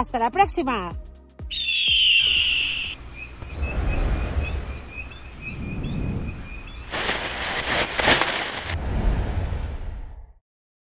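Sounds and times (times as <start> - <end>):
rapid bird-like chirps: 1.5 - 8.0
rush of hissing noise: 2.9 - 9.9
low rumble: 3.0 - 7.9.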